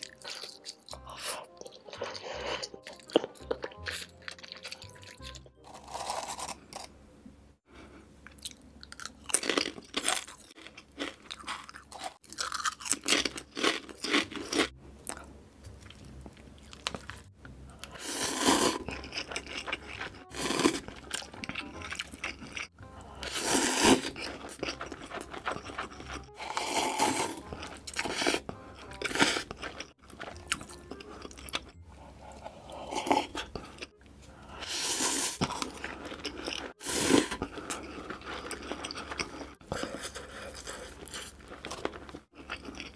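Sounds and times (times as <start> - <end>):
crunching and chewing chips: 0.0 - 7.0, 8.3 - 34.0, 34.6 - 42.9
noodles slurping: 17.8 - 31.6, 34.6 - 42.9.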